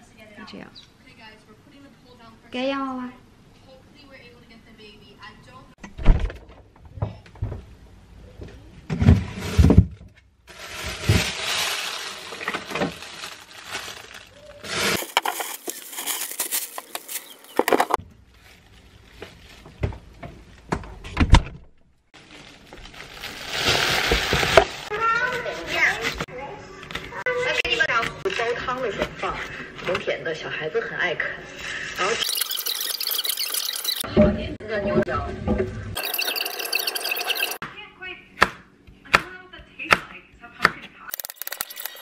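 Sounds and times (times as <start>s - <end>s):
plastic bag rustling: 10.5s - 20.6s, 22.2s - 26.3s
jars and containers clinking: 32.2s - 34.0s, 36.0s - 37.6s, 41.1s - 42.0s.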